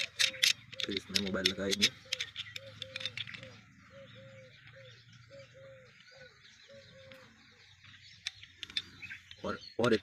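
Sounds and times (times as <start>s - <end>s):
dove cooing: 0.0s - 7.7s.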